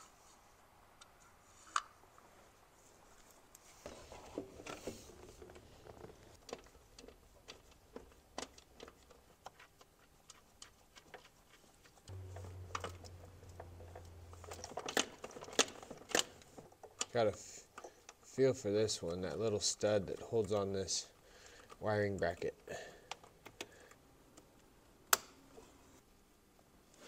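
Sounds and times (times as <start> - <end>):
low steady hum: 12.1 - 17.1.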